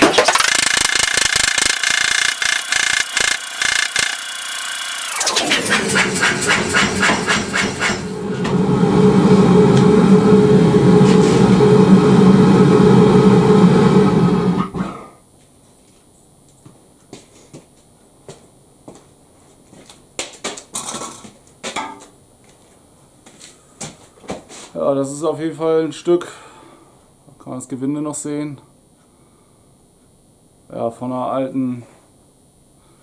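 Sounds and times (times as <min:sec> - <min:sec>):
power hammer striking hot steel: 0:00.0 - 0:10.1
motor and compressor running: 0:00.0 - 0:14.9.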